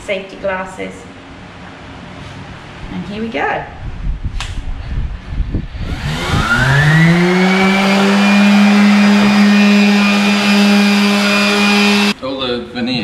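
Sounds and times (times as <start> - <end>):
power sander motor whining: 5.7 - 12.2.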